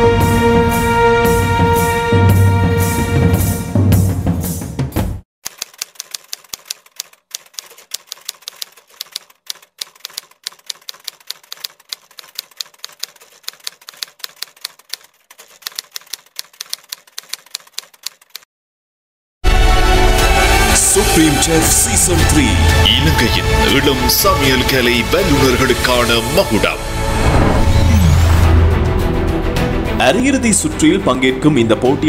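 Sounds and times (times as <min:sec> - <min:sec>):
background music: 0:00.0 - 0:05.2, 0:19.5 - 0:32.0
typewriter key clicks: 0:05.5 - 0:18.4.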